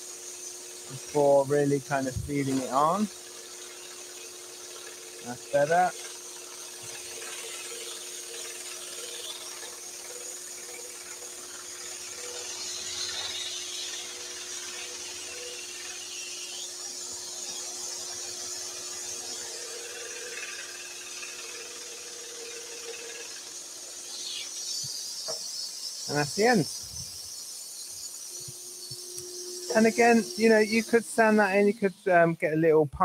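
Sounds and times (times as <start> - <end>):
scroll saw cutting wood: 0.0 - 32.0.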